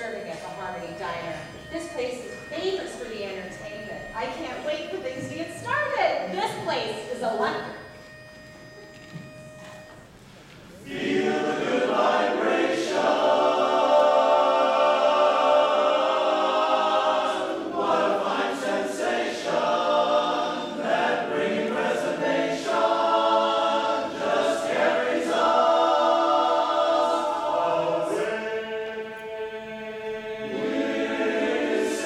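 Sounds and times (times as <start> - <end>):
men's chorus singing a cappella: 10.8 - 32.0.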